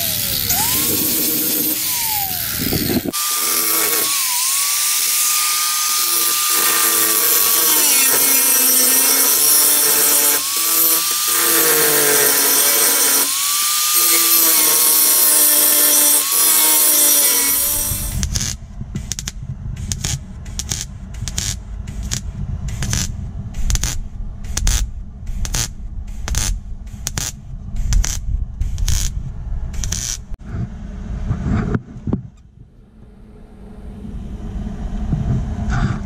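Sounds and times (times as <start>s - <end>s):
power tool motor whine: 0.0s - 18.6s.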